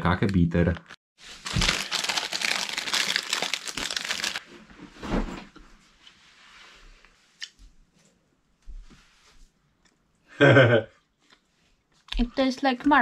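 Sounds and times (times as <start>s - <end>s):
plastic wrapping crinkling: 1.2s - 4.4s.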